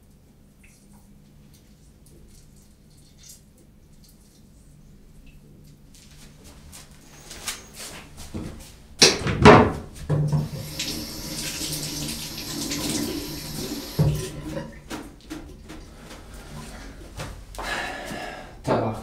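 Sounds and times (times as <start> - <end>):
tap running into steel sink: 9.0 - 15.4.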